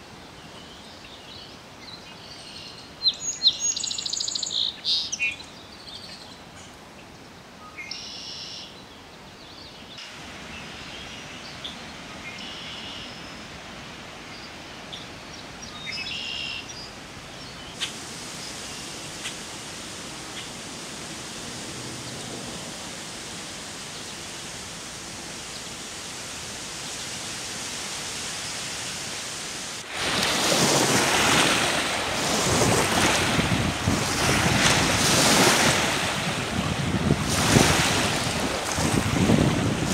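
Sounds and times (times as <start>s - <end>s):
bird calls: 0.5s - 6.8s, 7.6s - 8.8s, 10.6s - 13.4s, 14.4s - 19.4s
waves washing on water: 10.0s - 39.9s
gusty wind on microphone: 28.6s - 39.9s.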